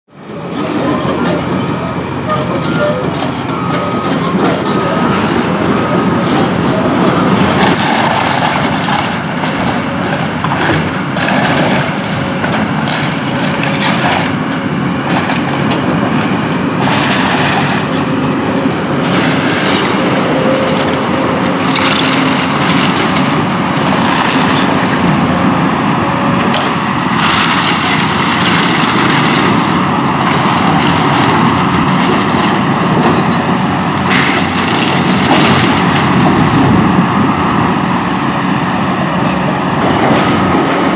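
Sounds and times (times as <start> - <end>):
excavator running hard: 0.1 - 40.9
splintering timber cracking: 6.2 - 14.4, 26.5 - 36.7
falling debris: 26.6 - 36.6.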